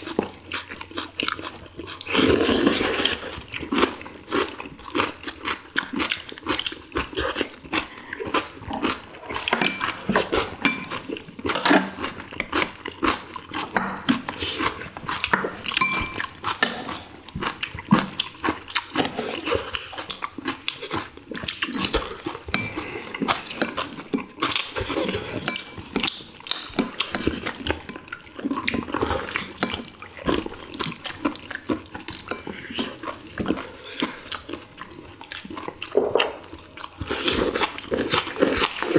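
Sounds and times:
utensils clinking on ceramic bowls: 0:09.3 - 0:11.9, 0:13.6 - 0:17.0, 0:21.8 - 0:30.9, 0:31.7 - 0:34.2.

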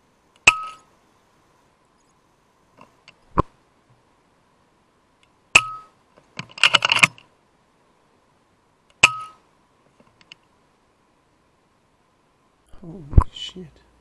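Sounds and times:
rifle lever clicking: 0:06.4 - 0:07.2.

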